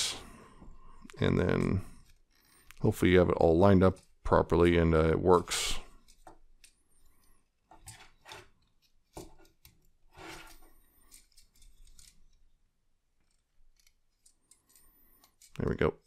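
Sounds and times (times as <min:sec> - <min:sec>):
plastic action figure clicks and scrapes: 0:05.9 - 0:12.5, 0:13.2 - 0:15.8.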